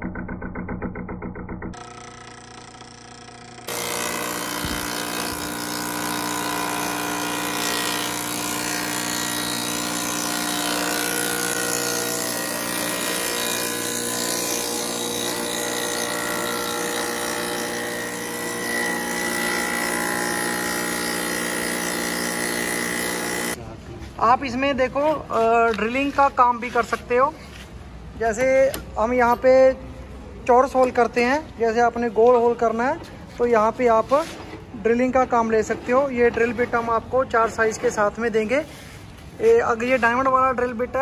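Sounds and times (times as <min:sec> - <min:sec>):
wood planer whining: 0:00.0 - 0:23.6.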